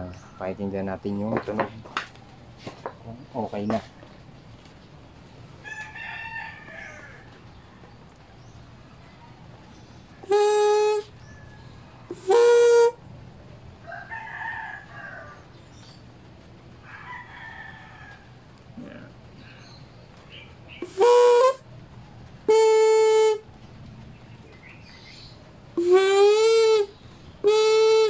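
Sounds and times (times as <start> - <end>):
rooster crowing: 5.6 - 7.8, 11.1 - 12.3, 13.8 - 15.6, 16.8 - 18.5
buzzing honks of reed valve: 10.2 - 11.1, 12.1 - 13.0, 20.8 - 21.7, 22.5 - 23.5, 25.8 - 28.0.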